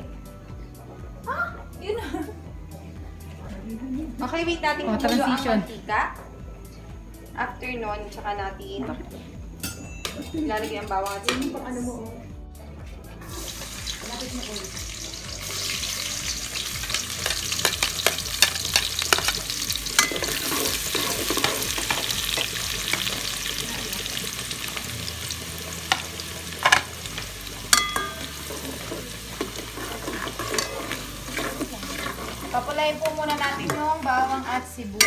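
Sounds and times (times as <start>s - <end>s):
garlic and onion sizzling in oil: 13.2s - 35.0s
metal spatula scraping pot: 17.2s - 22.4s, 27.7s - 34.7s.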